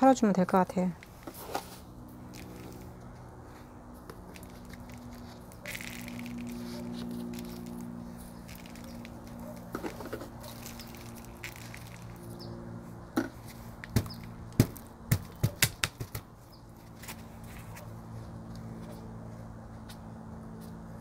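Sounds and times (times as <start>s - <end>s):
sharp hard taps and clicks: 13.8s - 16.3s.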